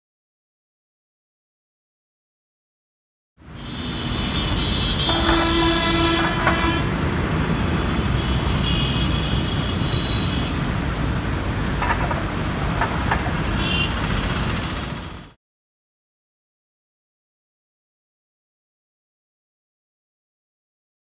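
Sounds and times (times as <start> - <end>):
road traffic rumble: 3.4 - 15.4
higher-pitched horn toot: 3.6 - 6.9
vehicle horn honking: 3.6 - 7.0, 8.3 - 10.6, 13.6 - 14.1.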